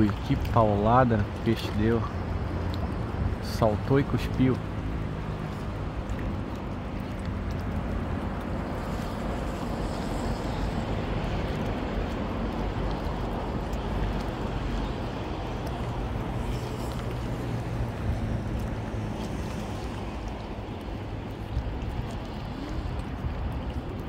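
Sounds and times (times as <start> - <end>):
sea washing against rocks: 0.0 - 24.0
wind on microphone: 4.8 - 24.0.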